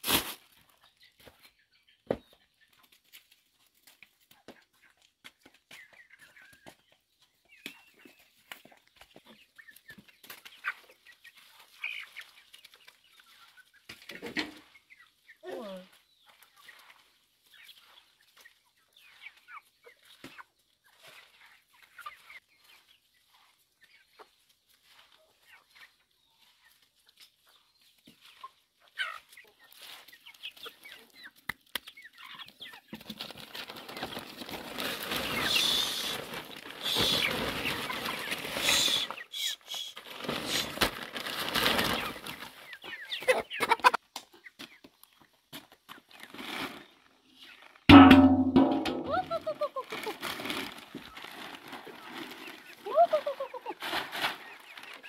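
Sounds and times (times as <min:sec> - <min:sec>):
chickens pecking: 0:00.0 - 0:55.0
chickens clucking: 0:00.4 - 0:55.0
rustling of shredded stalk: 0:33.1 - 0:42.6.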